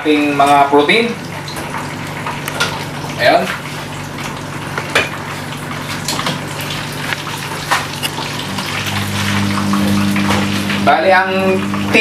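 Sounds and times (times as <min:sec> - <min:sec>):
hot oil sizzling: 0:00.0 - 0:12.0
low steady hum: 0:07.1 - 0:12.0.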